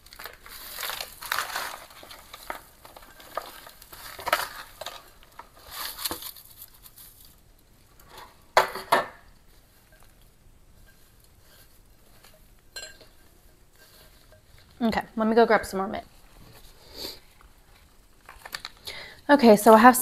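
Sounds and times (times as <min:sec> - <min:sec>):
foil crinkling: 0:00.0 - 0:08.3, 0:13.7 - 0:19.9
potting mix pouring and rattling: 0:00.0 - 0:20.0.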